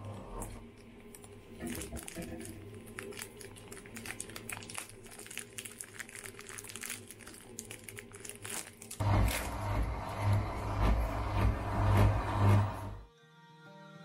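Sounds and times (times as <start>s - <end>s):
plastic bag crinkling: 1.0s - 9.8s
low rumble: 9.0s - 13.0s.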